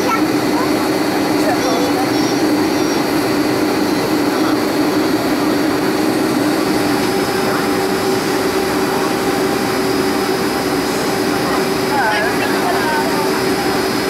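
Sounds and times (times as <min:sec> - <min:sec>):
high steady whine: 0:00.0 - 0:14.0
jet engine drone and airflow: 0:00.0 - 0:14.0
steady low hum: 0:00.0 - 0:14.0.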